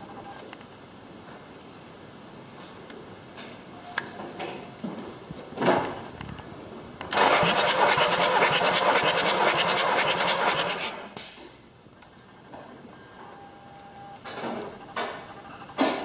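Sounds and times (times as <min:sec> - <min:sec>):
starter motor cranking diesel engine: 0:07.1 - 0:09.0.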